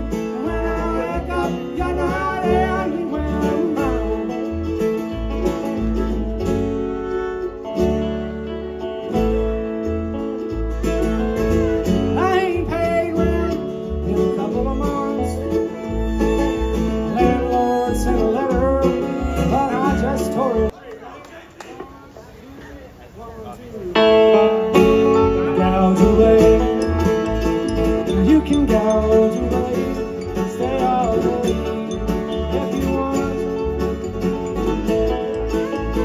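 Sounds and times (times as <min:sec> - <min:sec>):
acoustic guitar: 0:00.0 - 0:20.7, 0:24.0 - 0:36.0
banjo: 0:00.0 - 0:20.7, 0:24.0 - 0:36.0
upright bass plucking: 0:00.0 - 0:20.7, 0:24.0 - 0:36.0.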